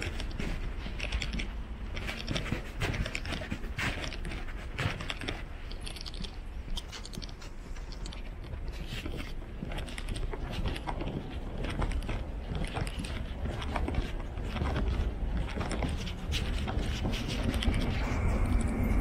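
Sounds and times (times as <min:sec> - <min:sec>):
low street rumble: 0:00.0 - 0:19.0.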